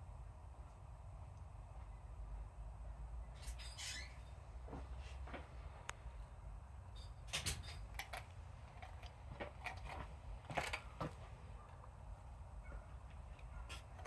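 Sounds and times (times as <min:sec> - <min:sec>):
puppy gnawing a bone: 0:07.9 - 0:12.0, 0:13.2 - 0:14.0.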